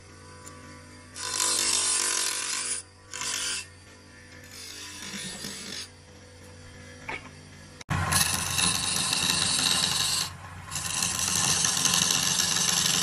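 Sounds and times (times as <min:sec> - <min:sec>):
lathe tool scraping wood: 0:01.2 - 0:03.8, 0:04.4 - 0:06.0, 0:07.9 - 0:13.0.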